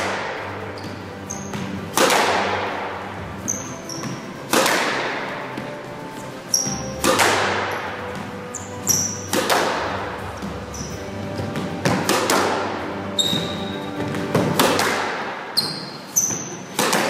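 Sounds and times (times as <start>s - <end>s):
shoes squeaking on wooden floor: 0.4s - 12.1s, 12.8s - 14.7s, 15.6s - 16.9s
squash ball cracking off walls: 1.5s - 2.8s, 4.0s - 5.3s, 6.7s - 8.3s, 13.4s - 15.4s, 16.7s - 17.0s.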